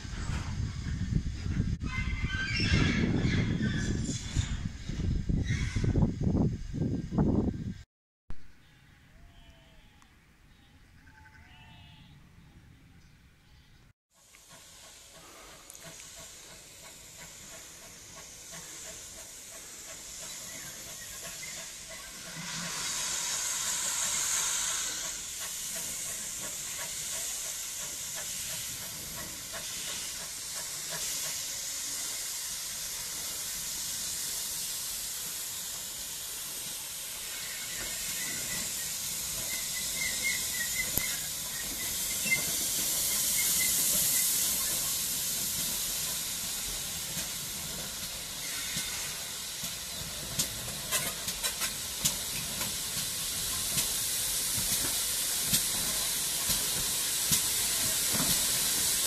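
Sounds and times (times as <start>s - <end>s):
steam locomotive hissing: 0.0s - 7.7s, 14.2s - 59.0s
wheels clicking over rail joints: 49.6s - 59.0s.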